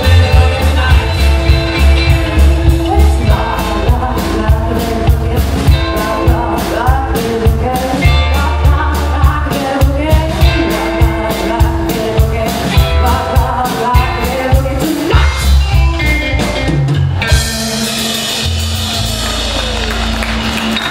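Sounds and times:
woman singing: 0.0s - 16.0s
rockabilly band playing: 0.0s - 20.9s.

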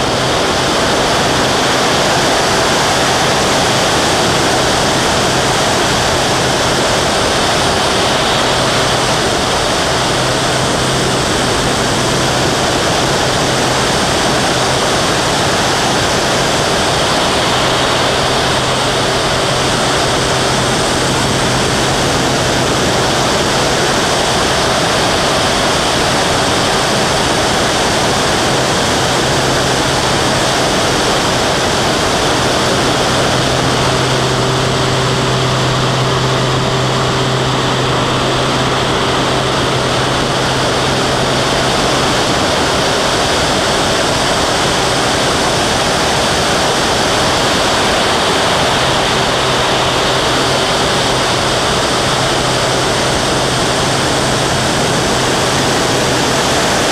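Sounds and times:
piston engine and propeller drone: 0.0s - 56.9s
airflow rushing over camera: 29.6s - 43.8s.

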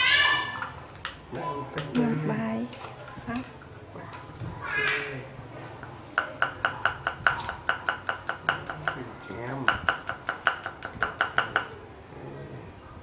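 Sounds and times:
cleaver chopping on wooden board: 6.2s - 9.0s, 9.6s - 11.7s.

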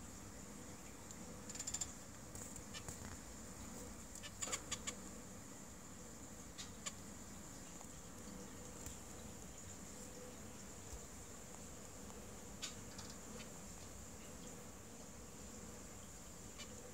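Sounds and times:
finches chirping: 4.2s - 5.0s.

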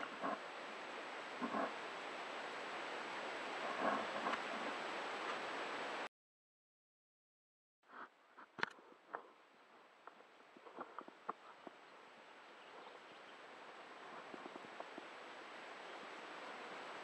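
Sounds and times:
soft hiss: 7.9s - 17.0s.

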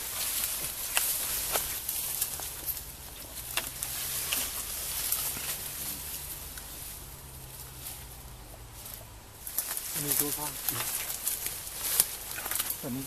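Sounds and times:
footsteps through undergrowth: 0.0s - 13.0s
rustling leaves and branches: 0.0s - 13.0s
twigs snapping: 0.0s - 13.0s.

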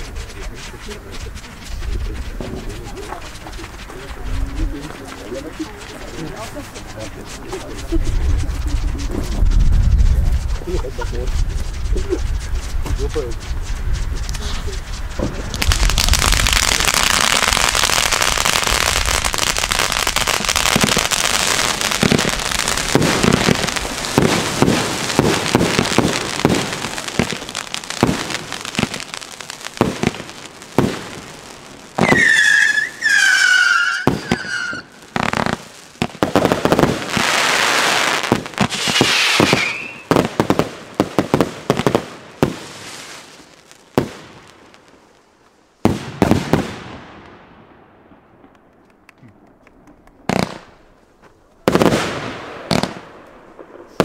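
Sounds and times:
firework whistles: 0.0s - 40.7s
firework launch pops and bursts: 0.0s - 54.0s
fireworks crackling: 0.0s - 54.0s.

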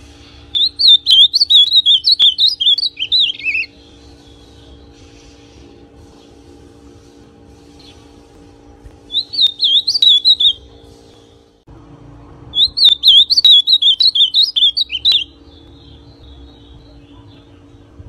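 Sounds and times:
bird twittering softly: 0.2s - 5.1s, 9.1s - 11.3s, 12.5s - 18.0s
bird singing warbled notes: 0.5s - 4.9s, 9.1s - 10.8s, 12.5s - 18.0s.

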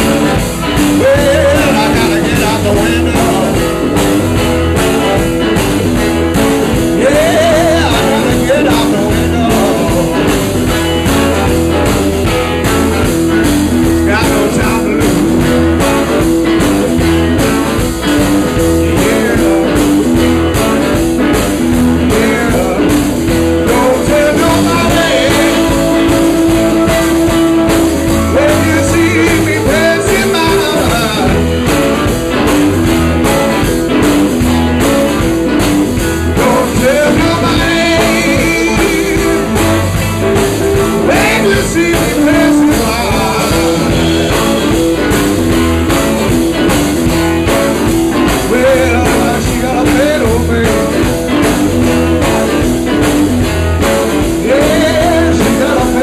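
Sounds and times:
drums keeping steady beat: 0.0s - 56.0s
electric bass: 0.0s - 56.0s
electric guitar: 0.0s - 56.0s.

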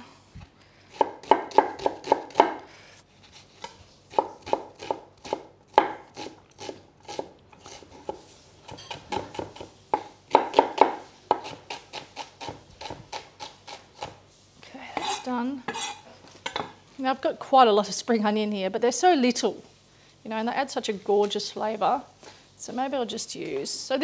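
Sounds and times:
knife chopping on wooden board: 0.9s - 2.6s, 3.6s - 14.2s.

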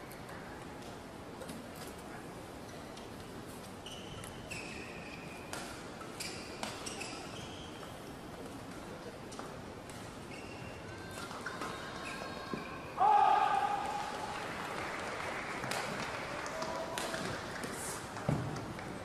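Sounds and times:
shoes squeaking on court: 3.6s - 8.0s, 10.2s - 10.9s.

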